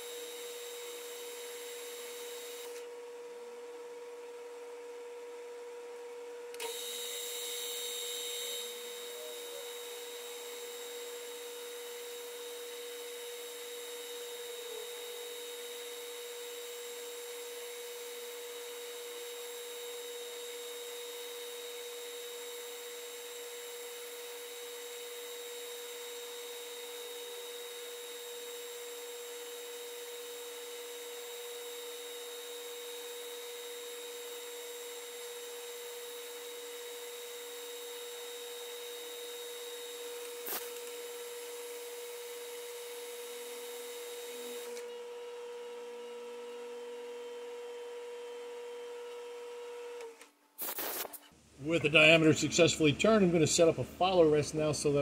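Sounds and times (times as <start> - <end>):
metal lathe whine: 0.0 - 3.0, 6.6 - 49.2
lathe hiss: 37.4 - 44.7, 50.6 - 52.8.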